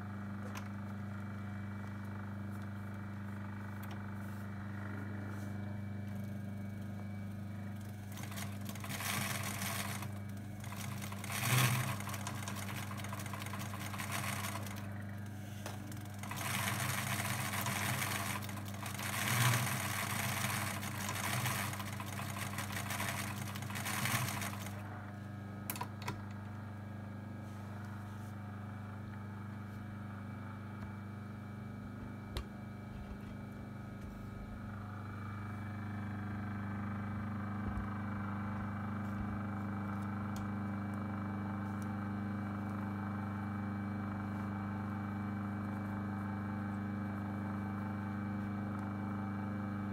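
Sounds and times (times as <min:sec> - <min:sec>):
low steady hum: 0:00.0 - 0:35.9
sewing machine stitching: 0:07.7 - 0:25.0.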